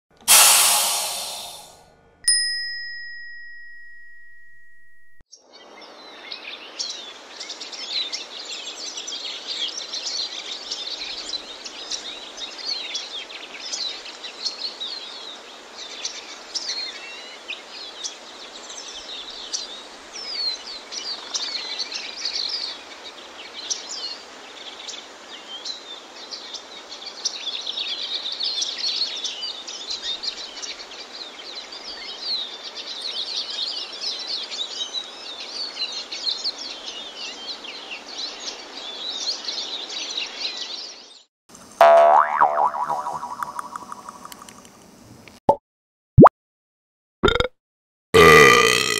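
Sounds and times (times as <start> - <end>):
birds chirping and trilling: 41.9 - 44.5.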